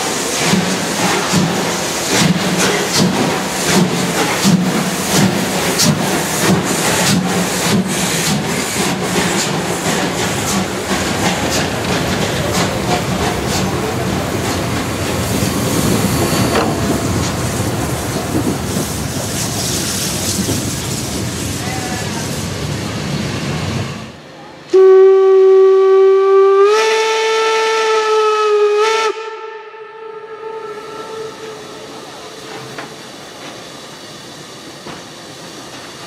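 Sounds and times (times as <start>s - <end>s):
steam locomotive exhaust chuffs: 0.0s - 21.9s
locomotive hiss and rumble: 0.0s - 24.6s.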